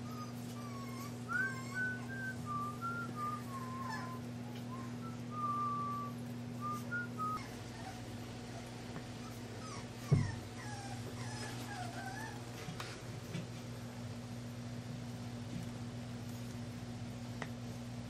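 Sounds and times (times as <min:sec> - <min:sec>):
puppies whimpering: 0:00.0 - 0:12.8
steady low hum: 0:00.0 - 0:18.0.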